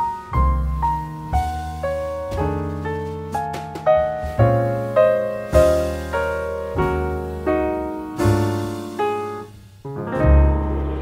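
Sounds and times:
slow piano melody: 0:00.0 - 0:11.0.

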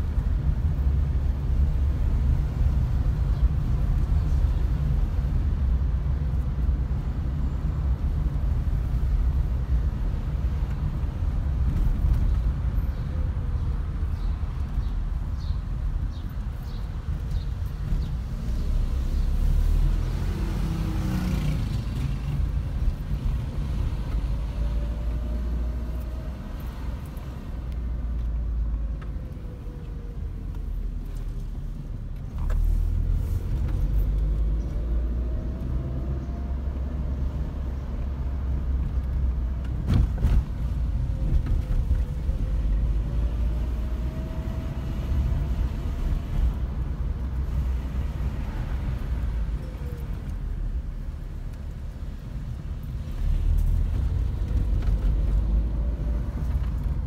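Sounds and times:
road rumble: 0:00.0 - 0:57.0.

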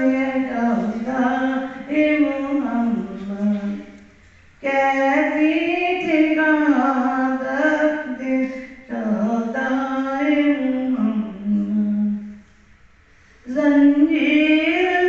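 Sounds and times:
woman chanting into microphone: 0:00.0 - 0:04.0, 0:04.6 - 0:12.4.

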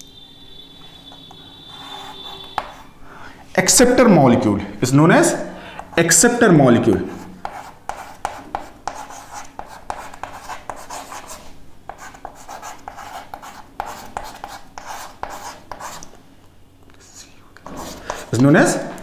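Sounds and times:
chalk scratching on chalkboard: 0:01.2 - 0:02.9, 0:07.0 - 0:16.1, 0:17.6 - 0:19.0.

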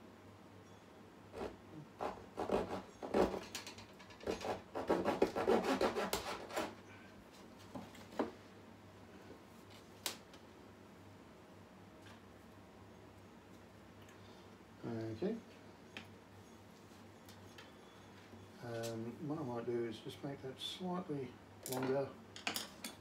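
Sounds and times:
wooden strips scraping on wood: 0:01.4 - 0:06.8.

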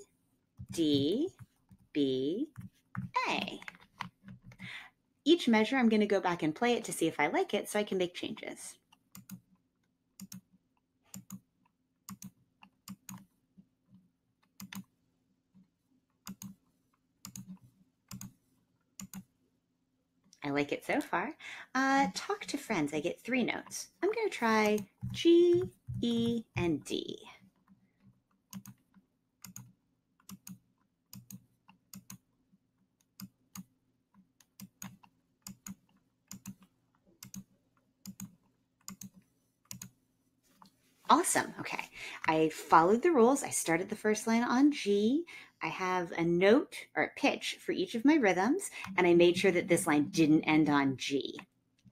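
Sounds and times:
computer mouse clicking: 0:08.9 - 0:09.5, 0:10.2 - 0:10.5, 0:11.1 - 0:11.4, 0:12.1 - 0:13.3, 0:14.4 - 0:14.9, 0:16.2 - 0:16.6, 0:17.2 - 0:18.4, 0:19.0 - 0:19.3, 0:28.0 - 0:32.2, 0:33.0 - 0:33.7, 0:34.4 - 0:40.0.

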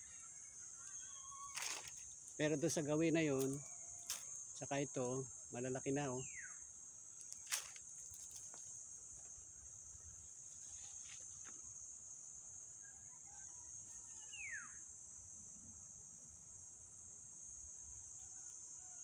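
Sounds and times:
insects droning: 0:00.0 - 0:19.0.

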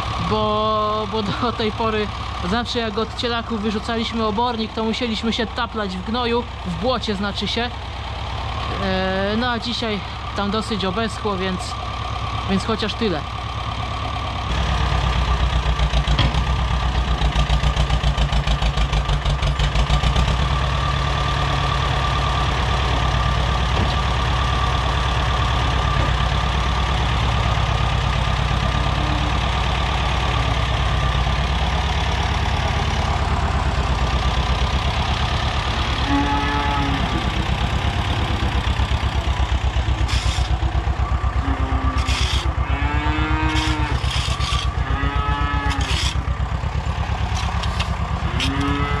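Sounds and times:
tractor diesel engine running: 0:00.0 - 0:49.0
cattle calling: 0:28.4 - 0:30.2, 0:35.8 - 0:37.5, 0:41.3 - 0:46.4, 0:47.3 - 0:49.0.

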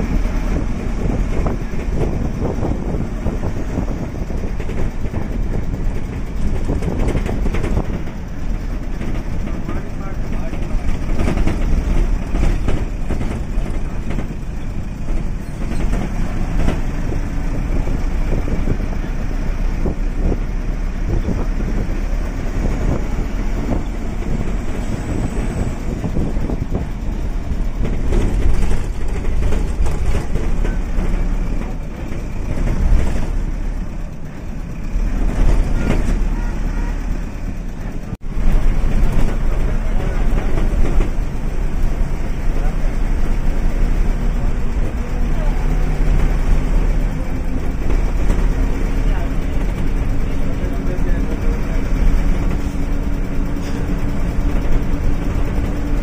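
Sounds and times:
bus rumbling on road: 0:00.0 - 0:56.0
short rattles and knocks: 0:00.3 - 0:36.4.

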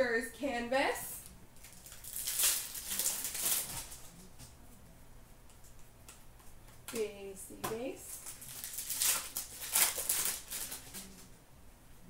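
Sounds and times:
card pack wrapper crinkling: 0:01.6 - 0:04.1, 0:08.2 - 0:11.3
cards rustling: 0:01.6 - 0:04.2, 0:08.2 - 0:11.3.

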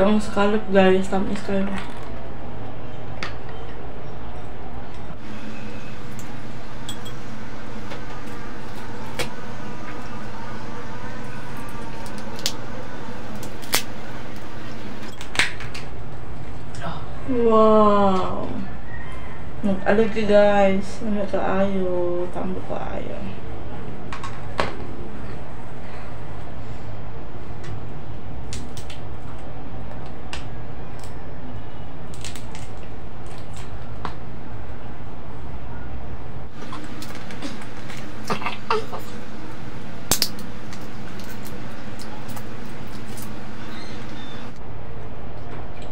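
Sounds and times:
background hum and hiss: 0:00.0 - 0:45.9
crab shell cracking and snapping: 0:11.9 - 0:12.6, 0:13.3 - 0:13.9, 0:28.5 - 0:29.1, 0:32.1 - 0:33.7, 0:40.1 - 0:44.3.

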